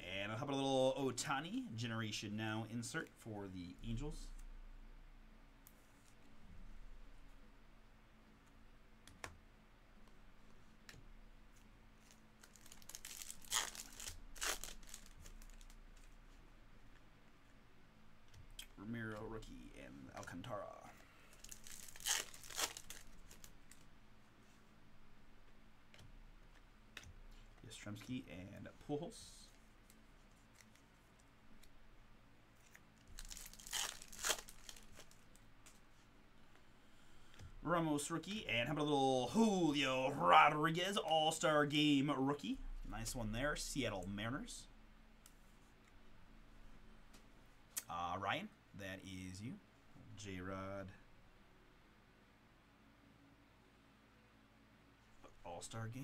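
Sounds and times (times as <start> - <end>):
plastic and card crinkling: 11.5 - 16.4, 20.2 - 24.6, 29.4 - 31.8, 32.5 - 36.0.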